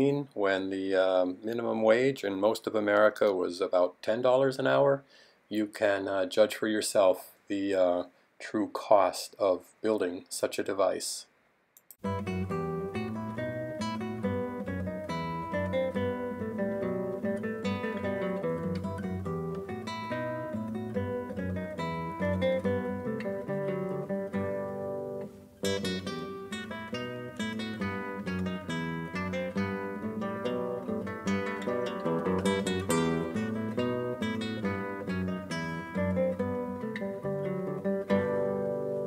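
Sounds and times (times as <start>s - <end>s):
acoustic guitar music: 12.0s - 39.0s.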